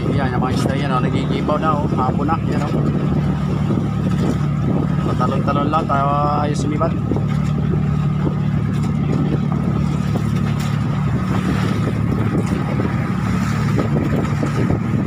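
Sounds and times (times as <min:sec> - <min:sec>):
boat engine humming: 0:00.0 - 0:15.0
water splashing along hull: 0:00.0 - 0:15.0.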